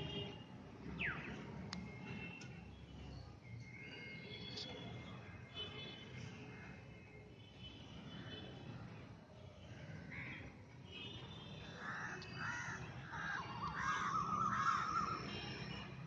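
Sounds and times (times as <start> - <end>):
wavering bird trill: 12.4 - 15.6.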